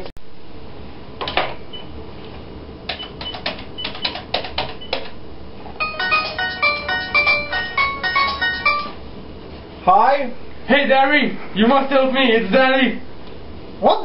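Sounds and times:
music with quick notes: 5.8s - 9.0s.

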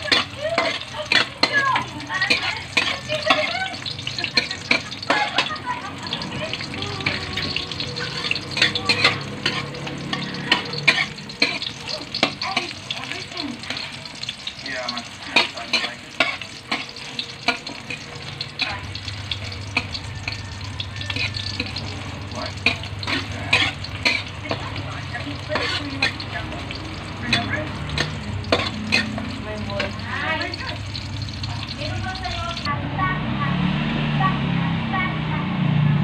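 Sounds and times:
metal spatula scraping wok: 0.0s - 32.7s
onions sizzling in oil: 0.0s - 32.7s.

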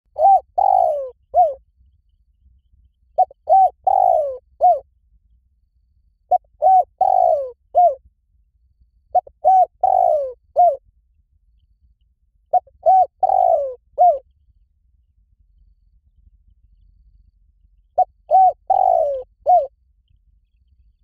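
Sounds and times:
dove cooing: 0.1s - 1.6s, 3.2s - 4.8s, 6.3s - 8.0s, 9.1s - 10.8s, 12.5s - 14.2s, 18.0s - 19.7s.

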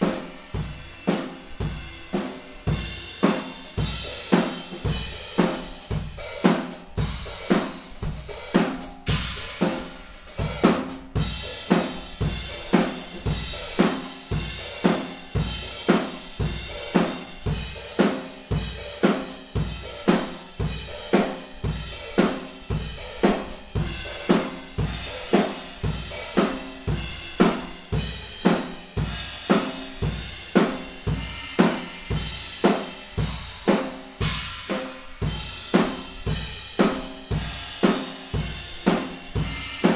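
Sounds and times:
drum kit playing a groove: 0.0s - 39.9s.

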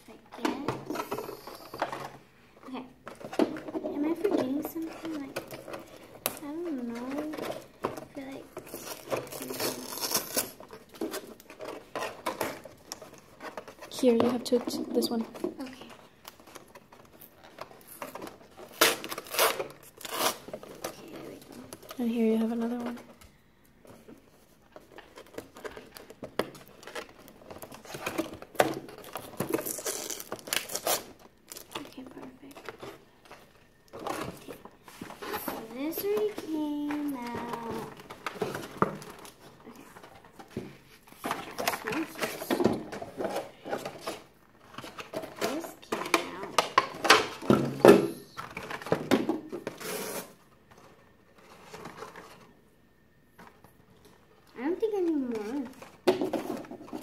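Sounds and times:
packaging rustling and crinkling: 0.0s - 57.0s
cardboard box being unpacked: 3.1s - 22.0s, 24.7s - 52.6s.

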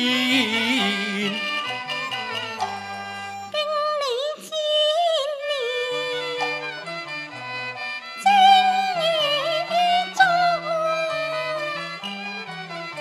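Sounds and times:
man singing opera: 0.0s - 1.7s
bowed fiddle melody: 0.0s - 13.0s
instrumental ensemble: 0.0s - 13.0s.

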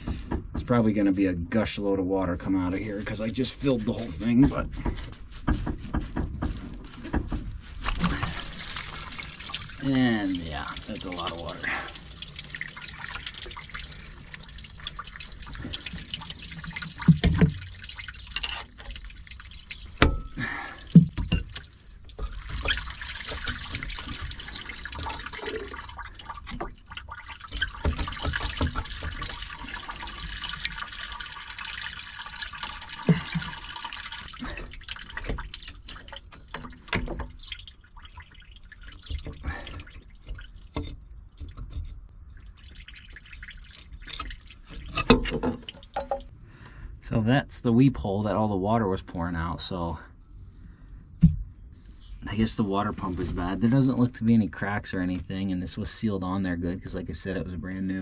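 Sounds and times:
running stream of water: 2.4s - 46.3s
water dripping and splashing: 2.4s - 46.3s.

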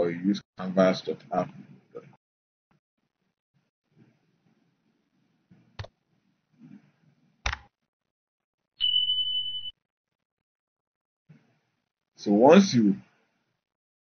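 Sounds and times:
steady high beep: 8.8s - 9.7s.

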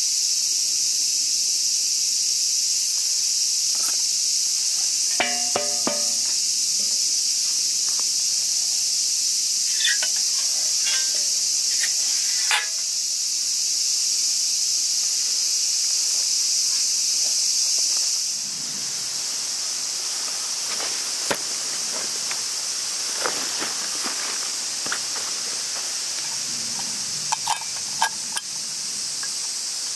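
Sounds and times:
insects droning: 0.0s - 29.9s
short ringing tap: 5.2s - 6.2s.

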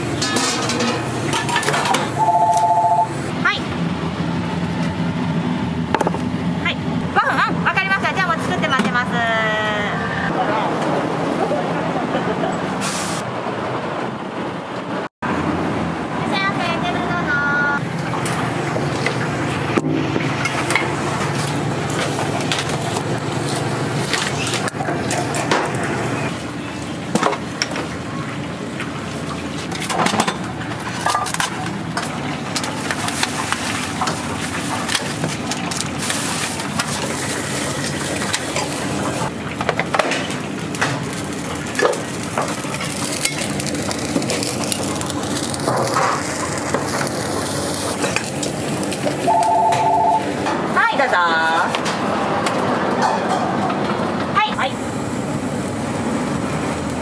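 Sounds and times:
clatter of pots and dishes: 0.1s - 2.2s, 29.6s - 34.2s, 39.5s - 41.0s, 53.0s - 54.0s.

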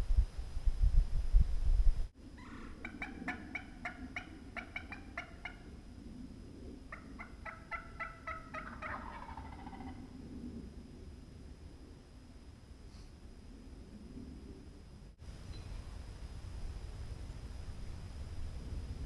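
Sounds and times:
wild turkey yelping: 2.4s - 5.8s, 6.9s - 10.0s.

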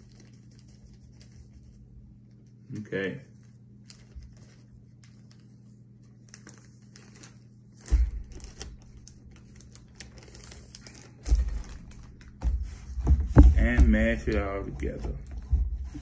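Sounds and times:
plastic bag crinkling: 0.0s - 2.7s, 3.3s - 12.4s
dull thumps: 10.9s - 16.0s.

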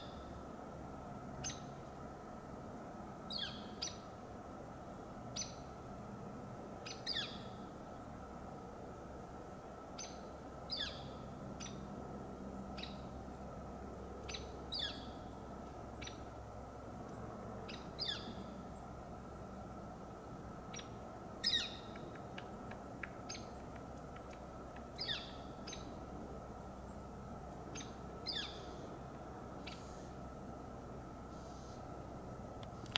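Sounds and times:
woodpecker calling: 6.9s - 7.5s, 14.2s - 15.2s, 17.7s - 18.4s, 20.7s - 26.0s, 27.7s - 28.8s.

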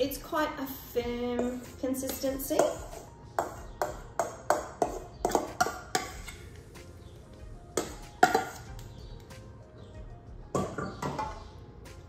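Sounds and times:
spoon scraping metal bowl: 1.4s - 6.5s.

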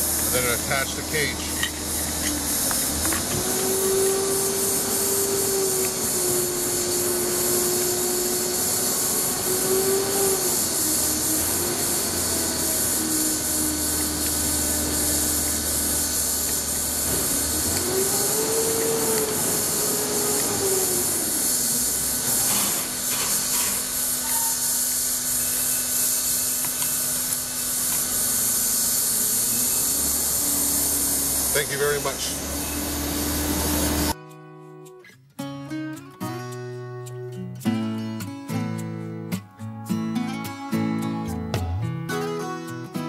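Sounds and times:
machine hiss and hum: 0.0s - 34.2s.

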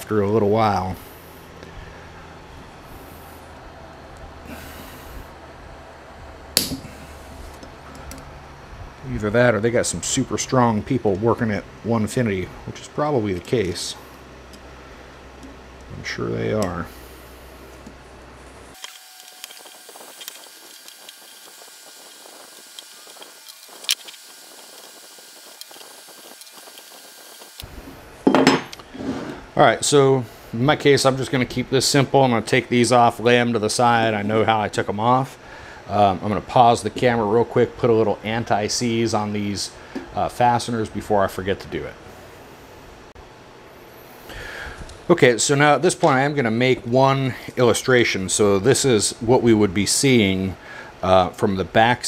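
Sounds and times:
low steady hum: 0.0s - 52.0s.

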